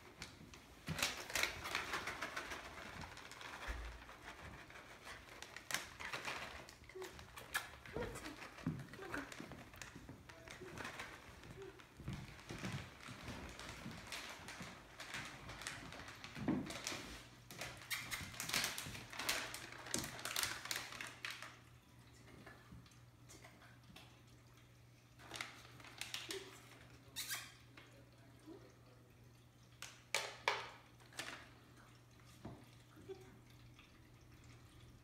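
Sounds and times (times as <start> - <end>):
water fountain trickling: 19.0 - 35.0.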